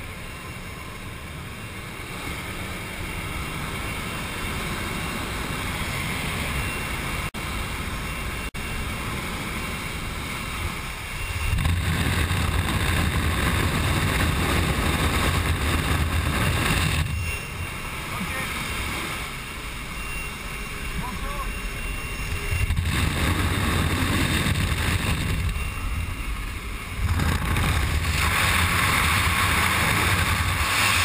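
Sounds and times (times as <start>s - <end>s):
aircraft engine: 0.0s - 31.0s
wind rushing through open door: 22.6s - 31.0s.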